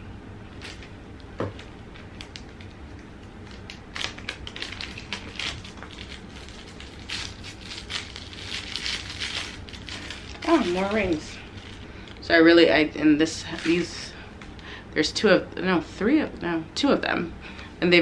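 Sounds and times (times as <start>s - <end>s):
plastic bag crinkling: 1.6s - 12.3s.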